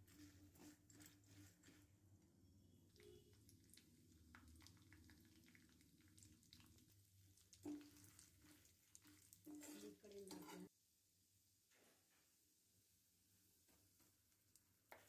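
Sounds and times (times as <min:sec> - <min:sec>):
metal spatula scraping in iron pan: 0:00.0 - 0:01.9, 0:08.4 - 0:10.7.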